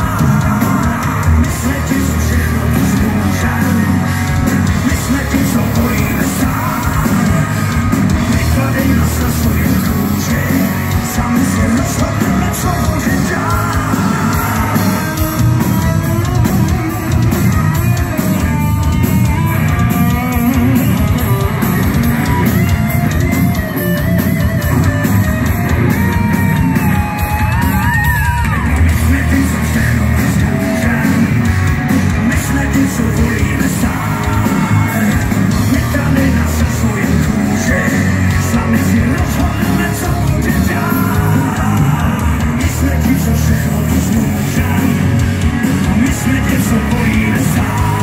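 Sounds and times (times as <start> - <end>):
rock band playing live: 0.0 - 48.0.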